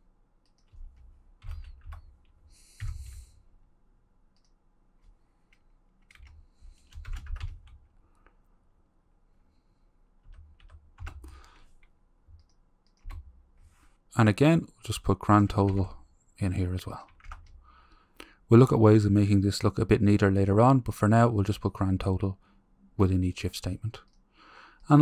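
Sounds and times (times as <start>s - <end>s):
computer keyboard typing: 0.4s - 3.2s, 4.3s - 7.9s, 10.2s - 13.4s, 17.1s - 17.6s.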